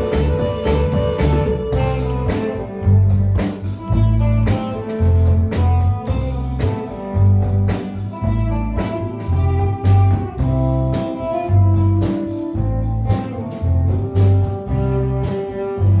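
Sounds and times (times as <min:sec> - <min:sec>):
deep bass line: 0:00.0 - 0:16.0
drums: 0:00.0 - 0:16.0
electric guitar: 0:00.0 - 0:16.0.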